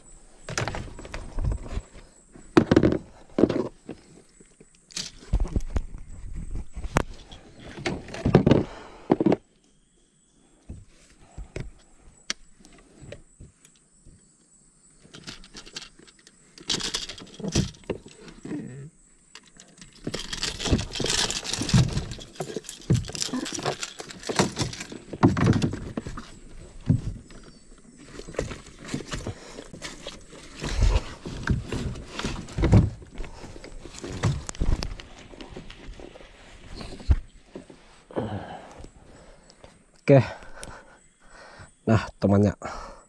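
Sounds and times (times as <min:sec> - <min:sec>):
gear rattling in plastic hull: 0:15.1 - 0:18.4, 0:19.4 - 0:37.1.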